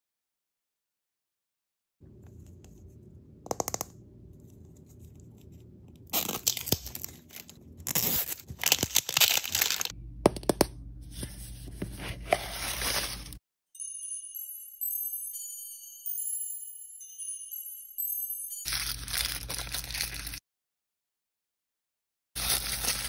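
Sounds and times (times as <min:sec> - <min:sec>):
plastic packaging tearing and crinkling: 0:06.1 - 0:09.9, 0:18.7 - 0:20.4, 0:22.4 - 0:23.0.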